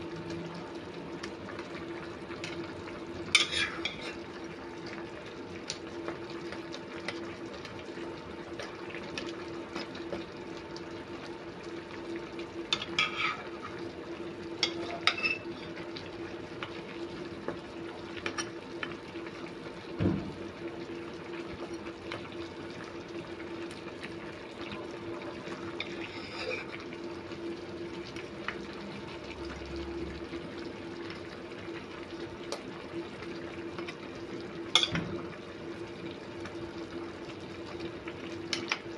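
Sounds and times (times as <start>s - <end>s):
pot bubbling at a simmer: 0.0s - 38.9s
dull thump: 20.0s - 20.3s.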